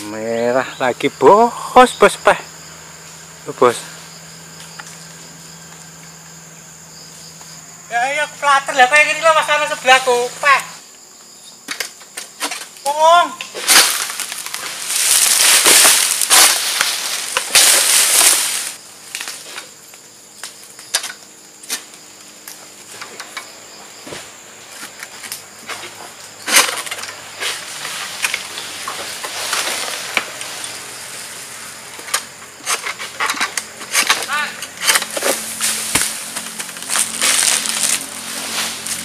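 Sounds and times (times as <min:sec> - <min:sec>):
blade cracking and scraping stalks: 0:11.7 - 0:23.6, 0:24.2 - 0:39.0
palm fronds crashing through leaves: 0:13.5 - 0:20.9, 0:25.7 - 0:31.7, 0:34.0 - 0:39.0.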